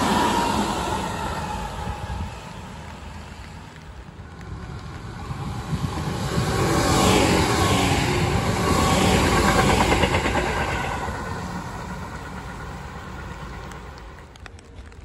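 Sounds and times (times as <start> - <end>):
electric train passing: 0.0 - 15.0
train wheels clattering over rail joints: 8.1 - 15.0.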